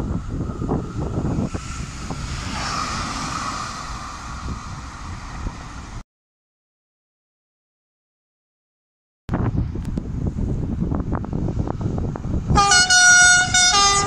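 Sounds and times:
steady low rumble: 0.0s - 6.0s, 9.3s - 12.8s
wind buffeting microphone: 0.0s - 6.0s, 9.3s - 14.0s.

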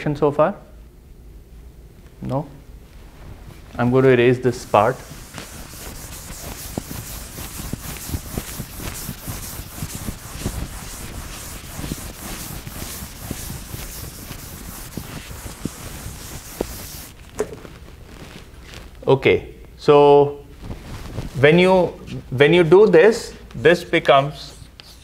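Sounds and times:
eraser rubbing on blackboard: 4.5s - 17.2s, 24.6s - 25.0s.

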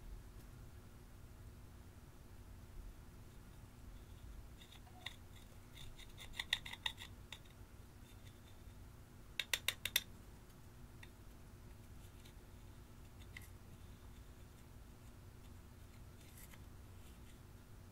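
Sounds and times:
metal tool scratching eyeshadow: 4.5s - 7.2s.

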